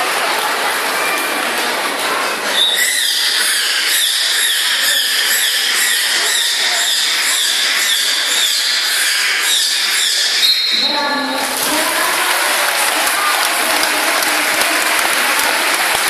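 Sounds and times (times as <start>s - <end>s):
dolphin squealing chirps: 2.5s - 11.0s.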